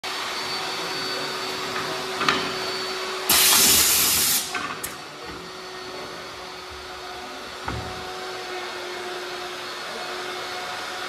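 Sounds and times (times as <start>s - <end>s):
machinery humming: 0.1s - 11.0s
compressed air hiss: 3.3s - 4.6s.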